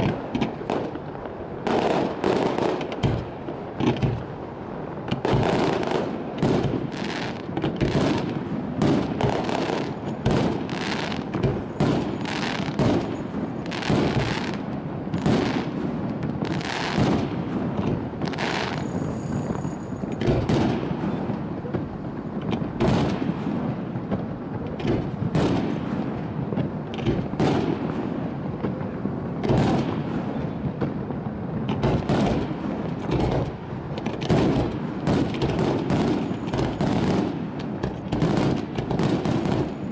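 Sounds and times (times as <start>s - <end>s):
rumble of crackle and echo: 0.0s - 39.9s.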